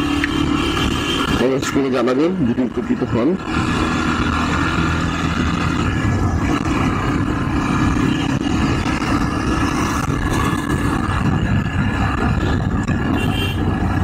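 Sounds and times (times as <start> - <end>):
motorcycle engine running: 0.0 - 14.0
road noise: 0.0 - 14.0
wind noise on microphone: 3.4 - 14.0.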